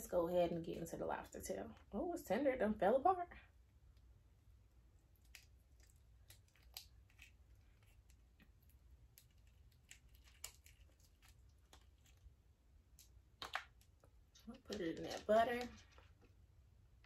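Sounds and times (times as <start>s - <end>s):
lobster meat pulled apart and chewed: 5.0s - 12.3s.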